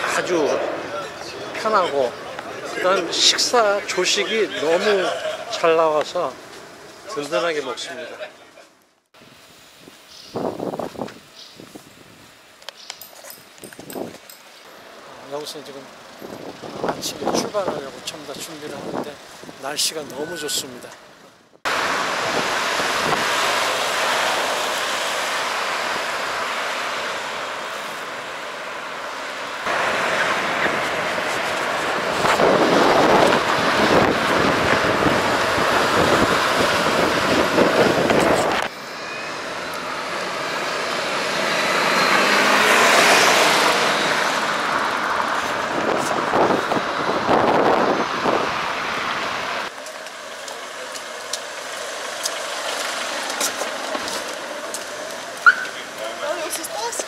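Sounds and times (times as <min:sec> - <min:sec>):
road traffic: 0:00.0 - 0:57.0
wind on microphone: 0:09.8 - 0:12.3, 0:22.1 - 0:23.4, 0:30.4 - 0:38.7, 0:45.3 - 0:49.4
vehicle passing: 0:21.7 - 0:57.0.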